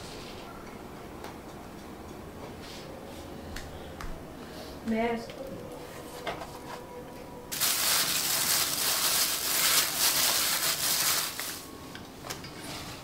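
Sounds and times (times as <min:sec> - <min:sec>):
plastic glove crinkling: 0:07.5 - 0:11.7.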